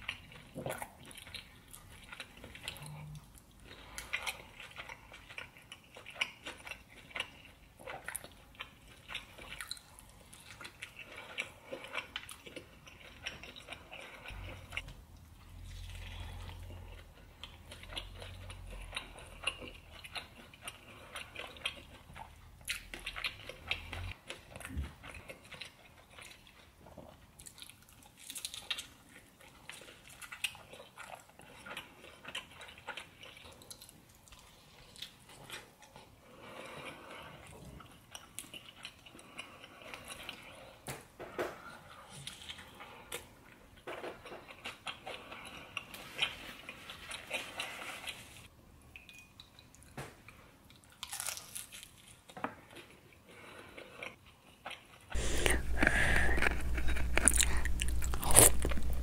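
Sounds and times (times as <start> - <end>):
wet chewing and lip smacks: 54.1 - 59.0
low hum: 55.2 - 59.0.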